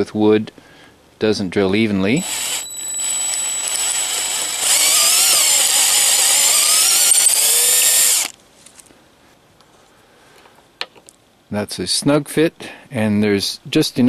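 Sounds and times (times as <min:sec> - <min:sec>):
power drill boring into wood: 0:02.2 - 0:08.3.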